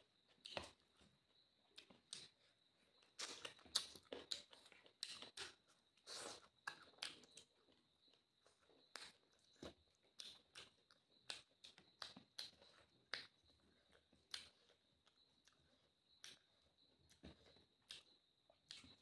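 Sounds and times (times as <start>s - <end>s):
quiet chewing: 0.0s - 19.0s
mouth clicks and smacks: 10.1s - 13.4s, 17.1s - 19.0s.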